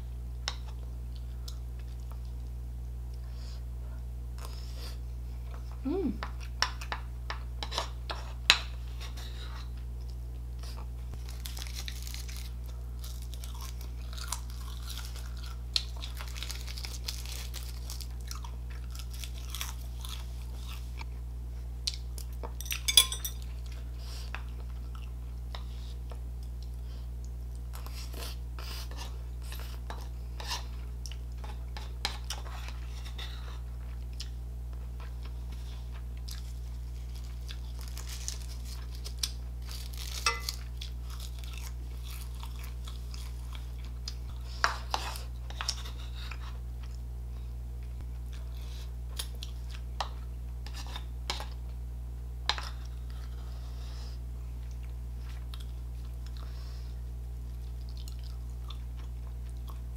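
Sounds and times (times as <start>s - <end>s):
steady low hum: 0.0s - 59.9s
close chewing and mouth sounds: 0.4s - 51.8s, 52.4s - 59.9s
metal spoon clicks: 22.6s - 23.4s
spoon clinking on ceramic plate: 22.6s - 23.4s.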